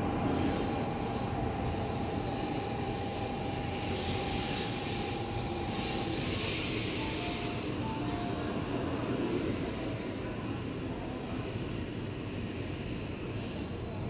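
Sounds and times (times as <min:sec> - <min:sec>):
train rumbling past: 0:00.0 - 0:14.0
high hiss: 0:00.2 - 0:09.5.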